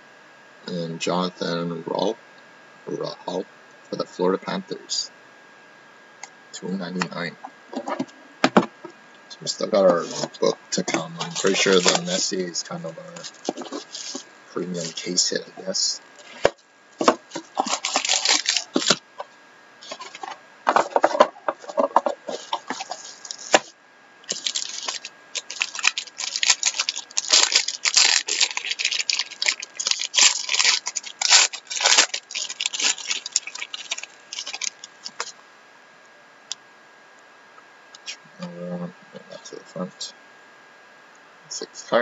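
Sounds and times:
plastic wrap tearing and crinkling: 0:09.9 - 0:12.4, 0:13.1 - 0:15.2, 0:16.2 - 0:19.2, 0:19.8 - 0:35.3.

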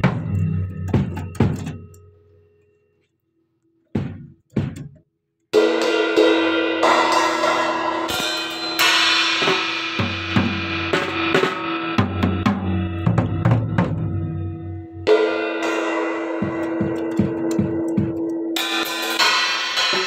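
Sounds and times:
drum kit playing: 0:00.0 - 0:02.0, 0:04.0 - 0:05.0, 0:05.6 - 0:20.0
cymbals ringing: 0:05.7 - 0:20.0.

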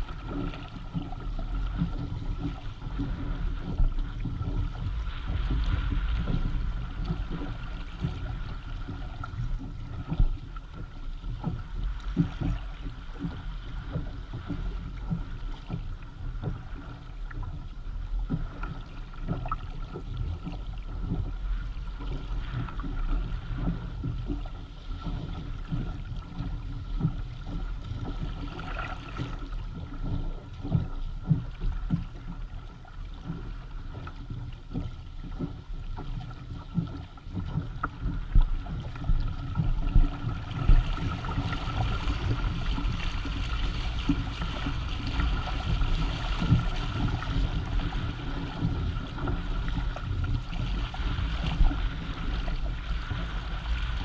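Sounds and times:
water slapping against hull: 0:00.0 - 0:54.0.

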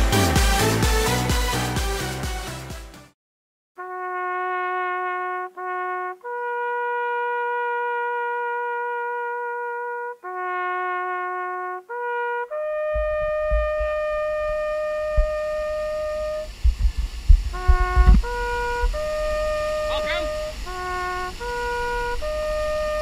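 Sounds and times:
slow brass melody: 0:00.0 - 0:02.9, 0:03.8 - 0:16.8, 0:17.4 - 0:23.0
low rumble: 0:13.0 - 0:23.0.

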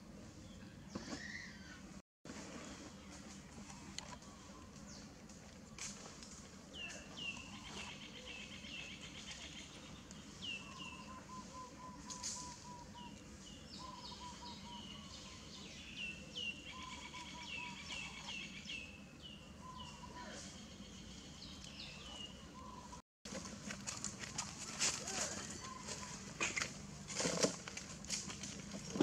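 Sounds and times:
steady outdoor hum: 0:00.0 - 0:29.0
birds chirping: 0:06.7 - 0:23.0, 0:25.3 - 0:26.9.

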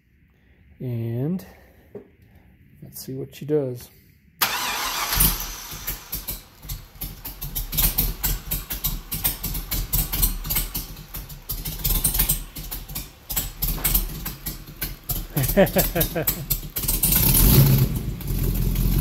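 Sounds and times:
starter cranking: 0:04.4 - 0:06.3.

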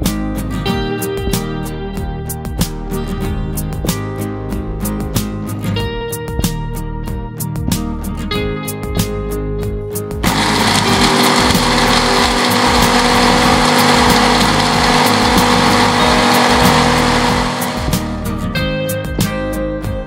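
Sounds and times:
blender grinding spices: 0:10.2 - 0:18.3.

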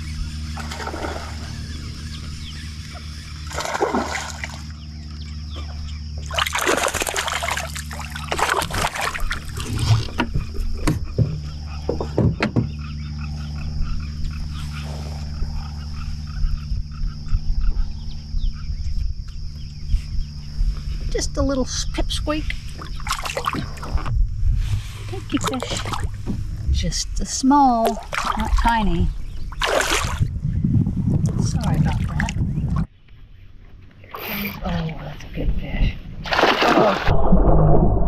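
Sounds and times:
fish splashing at water surface: 0:03.4 - 0:04.7, 0:06.2 - 0:10.1, 0:22.8 - 0:23.9, 0:27.8 - 0:28.7, 0:29.6 - 0:30.2, 0:36.2 - 0:37.2.

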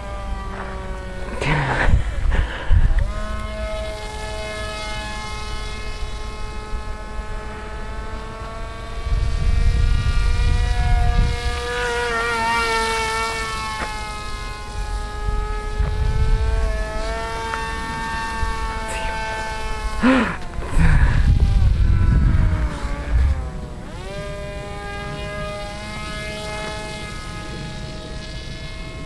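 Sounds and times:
model plane motor whining: 0:00.0 - 0:29.0.

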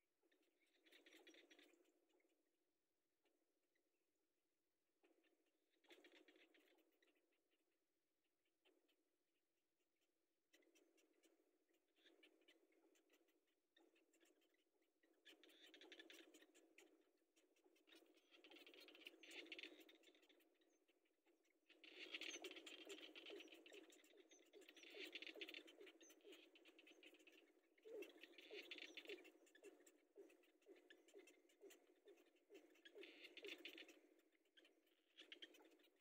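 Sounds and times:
chicks ticking chatter: 0:22.4 - 0:36.0.

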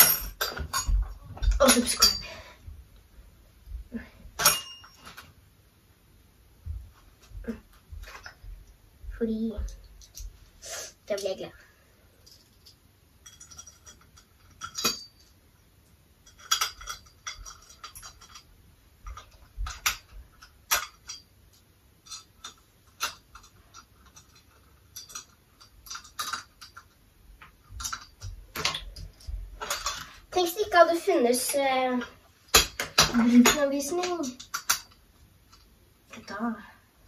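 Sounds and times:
metallic clicks of screws and tool: 0:10.0 - 0:10.4, 0:12.2 - 0:15.4, 0:16.2 - 0:30.1, 0:34.1 - 0:35.7.

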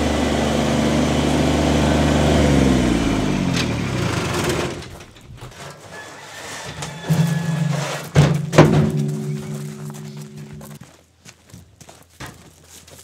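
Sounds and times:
tractor engine running: 0:00.0 - 0:06.0, 0:06.7 - 0:10.9.

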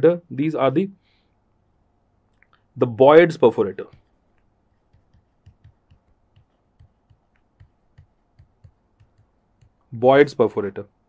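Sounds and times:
pen writing ticks: 0:04.8 - 0:09.8.

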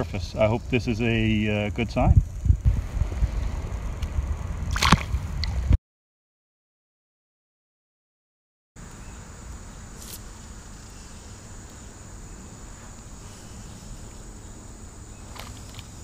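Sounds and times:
high-pitched insect chorus: 0:00.0 - 0:05.6, 0:08.8 - 0:16.0
low rumbling background: 0:00.0 - 0:05.8.

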